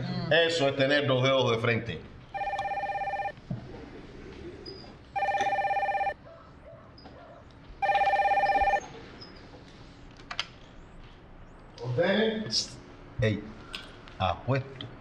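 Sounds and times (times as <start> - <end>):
telephone electronic trilling ring: 2.3 - 3.3, 5.2 - 6.2, 7.8 - 8.8.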